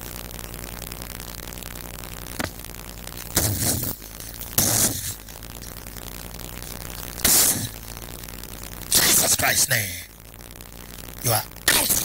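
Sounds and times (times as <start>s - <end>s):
electrical hum and hiss: 0.0s - 12.0s.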